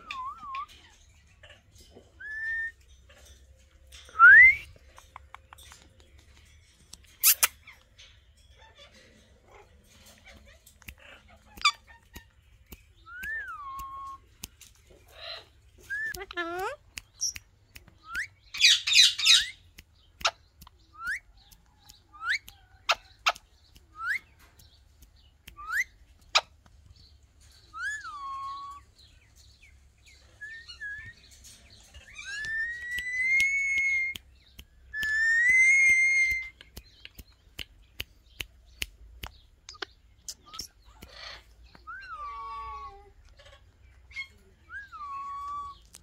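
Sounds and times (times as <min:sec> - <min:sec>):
sharp clicks: 0:32.2 - 0:41.1.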